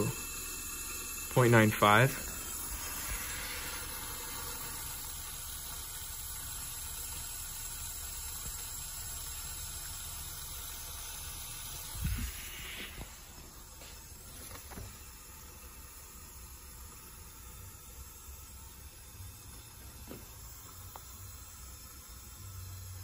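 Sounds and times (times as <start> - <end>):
water hissing through tubing: 0.0 - 14.9.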